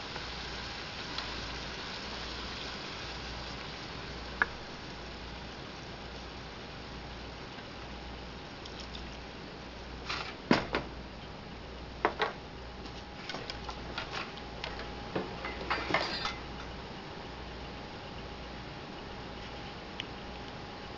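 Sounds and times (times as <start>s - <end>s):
steady low hum: 0.0s - 20.9s
spatula scraping meat in skillet: 15.9s - 16.4s.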